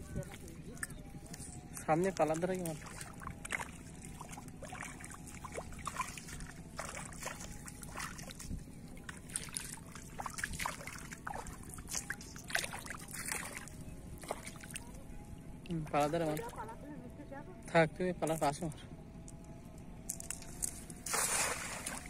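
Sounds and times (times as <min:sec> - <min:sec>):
feet wading through muddy water: 0:00.0 - 0:16.8, 0:20.0 - 0:22.0.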